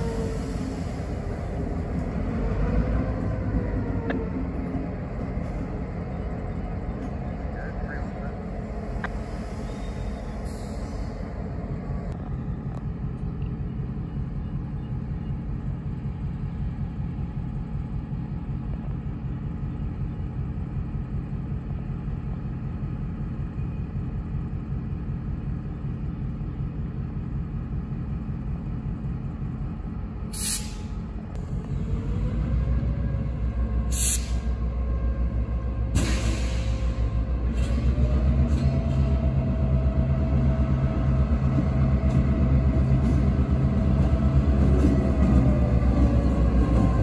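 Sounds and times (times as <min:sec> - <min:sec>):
diesel locomotive idling: 0:00.0 - 0:47.0
engine whine: 0:00.0 - 0:47.0
air hisses: 0:33.9 - 0:34.5.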